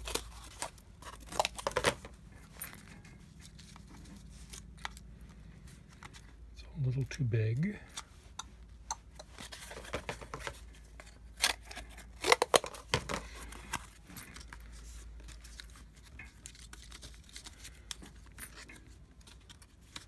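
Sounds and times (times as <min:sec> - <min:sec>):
paper and cardboard rustling: 0:00.0 - 0:06.4, 0:09.3 - 0:20.0.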